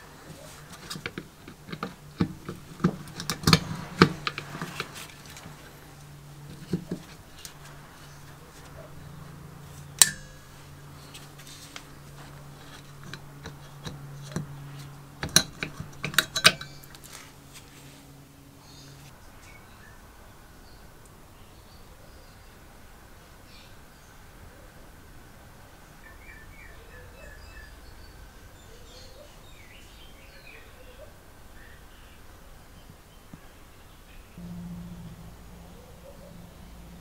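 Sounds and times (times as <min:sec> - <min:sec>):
low steady hum: 0:00.0 - 0:37.0
metal spring clinking and scraping: 0:00.2 - 0:17.7.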